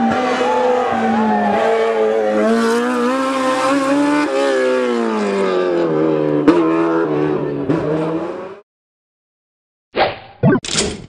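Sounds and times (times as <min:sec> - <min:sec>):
rally car engine revving: 0:00.0 - 0:08.6.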